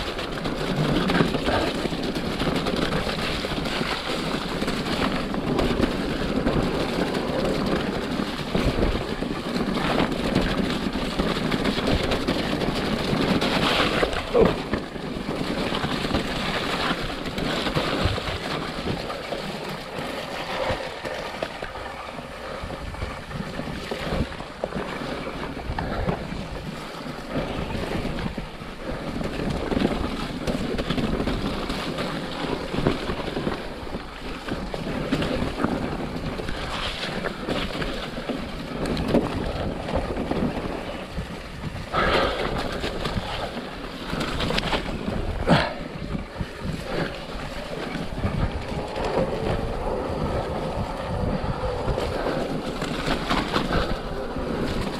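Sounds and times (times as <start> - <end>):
bike rattling: 0.0 - 54.9
tyres through wet mud: 0.0 - 54.9
wind on microphone: 0.0 - 54.9.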